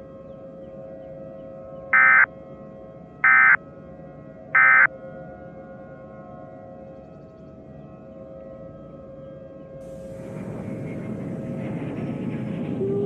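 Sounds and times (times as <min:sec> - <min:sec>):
steady drone of held tones: 0:02.0 - 0:02.3, 0:03.2 - 0:03.6, 0:04.6 - 0:04.9
buzzy digital data bursts: 0:04.6 - 0:04.9.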